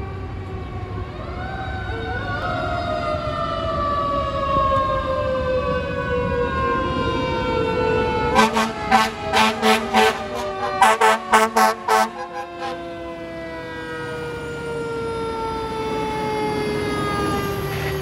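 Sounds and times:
fire engine siren wailing: 0.0 - 18.0
truck engine rumble: 0.0 - 18.0
air horn blasts: 8.3 - 13.1.

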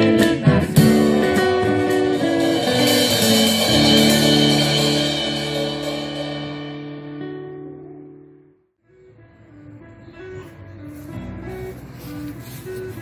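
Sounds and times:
guitar ensemble strumming chords: 0.0 - 8.5.

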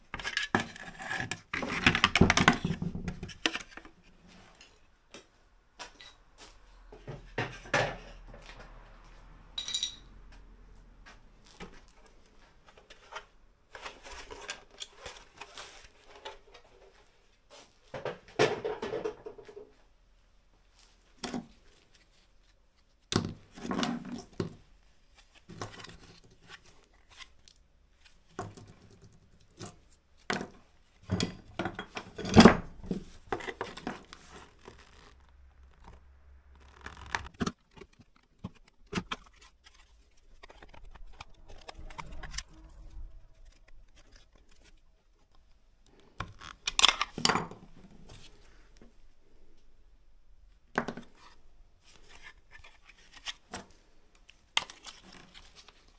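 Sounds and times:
plastic and metal parts knocking: 1.6 - 3.7.

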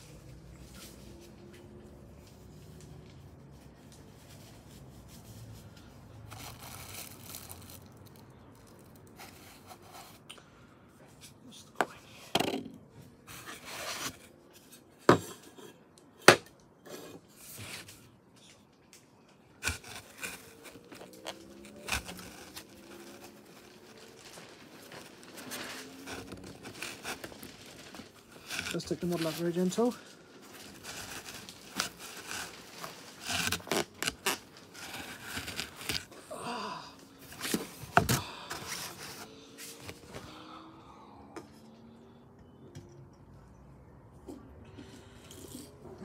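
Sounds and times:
cardboard and foam rustling: 0.0 - 10.2, 13.2 - 15.5, 17.2 - 18.2, 19.5 - 36.2, 37.1 - 40.4.

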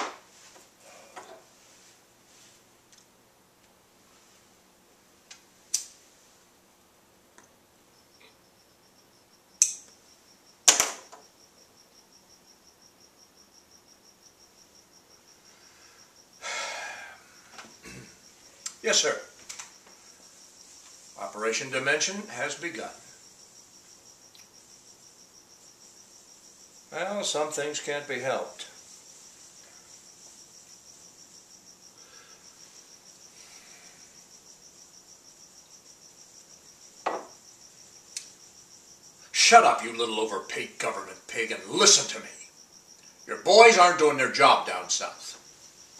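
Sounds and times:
high-pitched insect-like chirping: 8.0 - 39.3, 42.1 - 44.0, 44.6 - 45.9
sharp click: 9.6 - 9.9.

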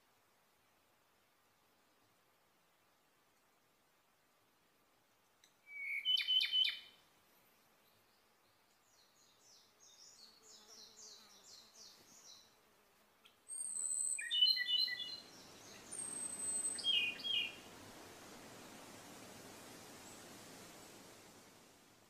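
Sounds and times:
bird singing piping notes: 5.6 - 7.0, 13.3 - 17.7.

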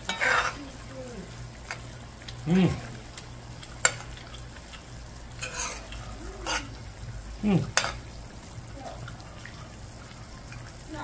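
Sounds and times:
metal spoon stirring in a pot: 0.0 - 0.8, 5.4 - 6.8, 7.7 - 8.1.

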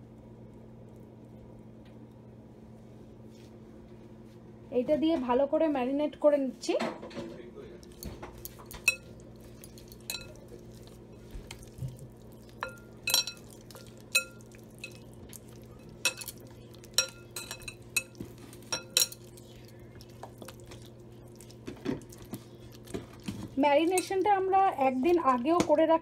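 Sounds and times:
low steady hum: 0.0 - 26.0
clinks on glass bowl: 10.0 - 10.4, 12.6 - 15.0, 16.0 - 19.2.

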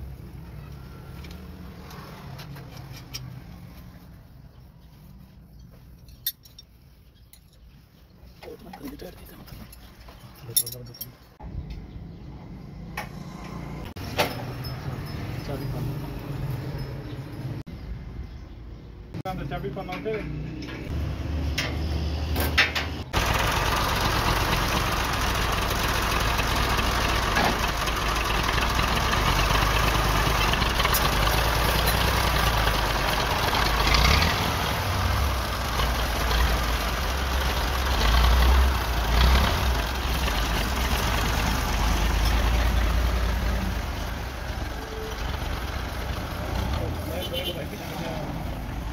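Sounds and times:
tractor diesel engine running: 22.7 - 47.5.

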